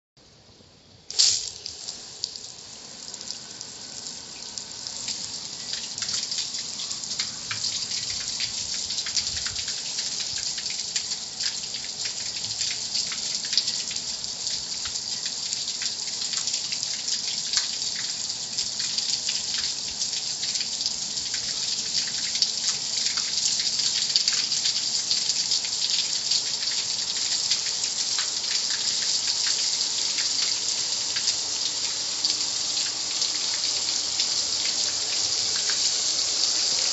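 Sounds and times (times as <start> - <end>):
water spray hissing: 1.1 - 2.4
water splashes ticking on surface: 1.1 - 35.9.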